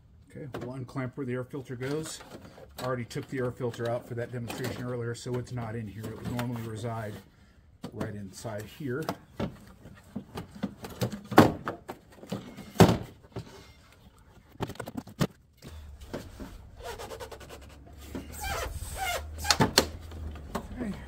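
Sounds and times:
plastic parts knocking and rubbing: 0:09.0 - 0:21.0
plastic clacks: 0:13.9 - 0:16.5
steady low rumble: 0:15.7 - 0:21.0.

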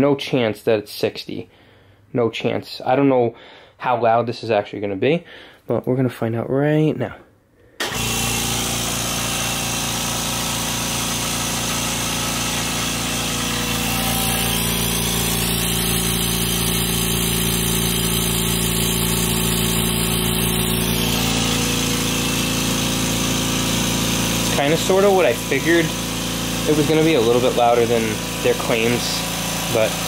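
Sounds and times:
air compressor running: 0:07.8 - 0:30.0.

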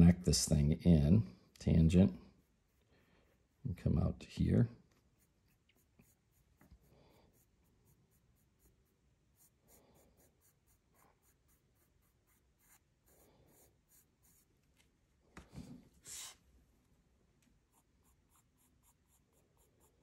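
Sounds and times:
pencil scratching on paper: 0:02.2 - 0:04.0, 0:05.0 - 0:14.6, 0:16.0 - 0:16.4, 0:17.7 - 0:20.0.

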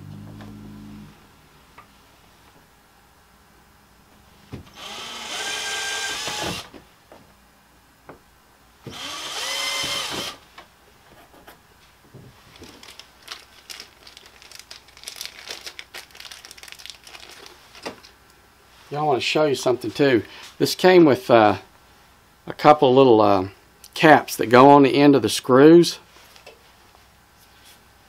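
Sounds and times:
cordless drill whining: 0:04.7 - 0:06.7, 0:08.9 - 0:10.4
handling rustle: 0:11.1 - 0:18.2.

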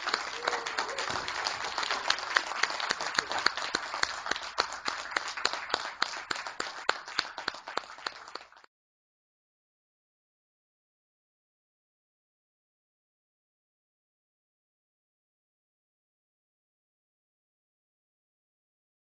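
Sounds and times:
audience applause: 0:00.0 - 0:08.7.

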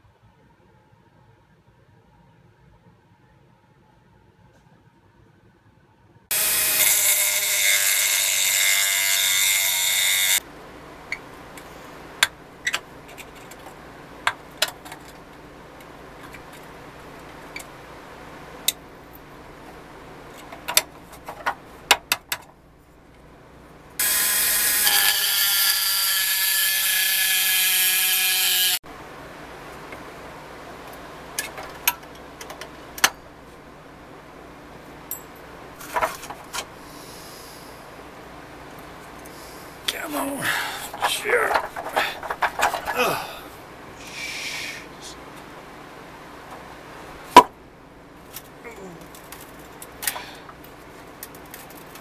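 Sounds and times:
rotary tool cutting metal: 0:06.3 - 0:10.4, 0:24.0 - 0:28.8.

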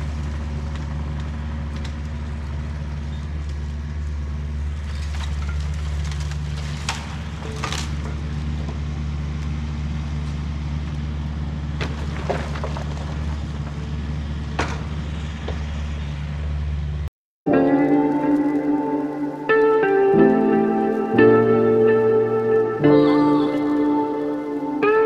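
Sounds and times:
wood cracking and snapping: 0:00.0 - 0:03.7, 0:04.8 - 0:08.4, 0:11.8 - 0:13.8.

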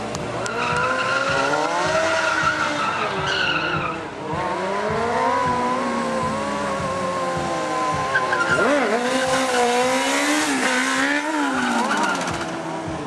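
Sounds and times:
motorcycle engine revving: 0:00.0 - 0:13.0
high tyre squeal: 0:00.4 - 0:04.5, 0:08.0 - 0:09.8, 0:10.4 - 0:12.7.

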